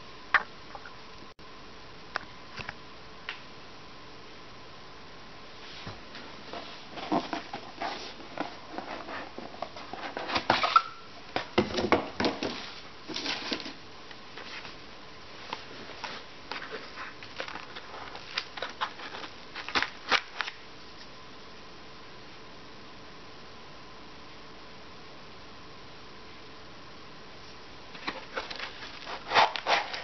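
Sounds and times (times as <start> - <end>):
cardboard rustling and scraping: 5.6 - 13.8, 14.4 - 14.8, 15.4 - 20.6, 27.9 - 30.0.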